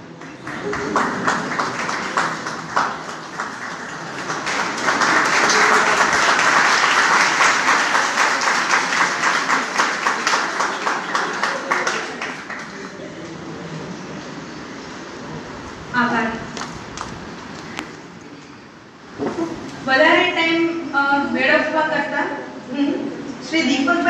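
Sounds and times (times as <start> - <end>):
audience applauding: 0.0 - 13.6.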